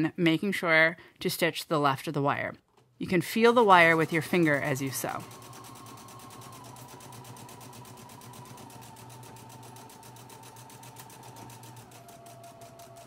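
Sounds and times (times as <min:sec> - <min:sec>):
sewing machine motor whine: 0:03.6 - 0:13.0
sewing machine needle ticking: 0:03.6 - 0:13.0.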